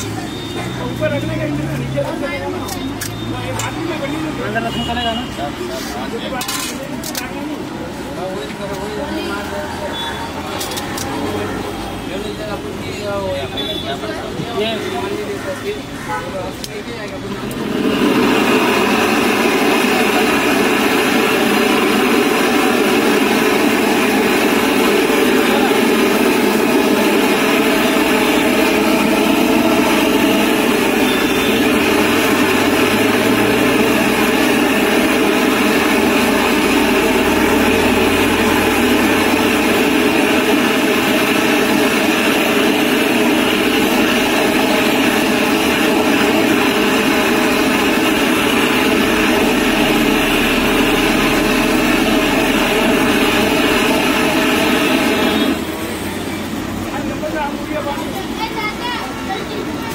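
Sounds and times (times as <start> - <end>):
blowtorch flame rushing: 17.4 - 56.1.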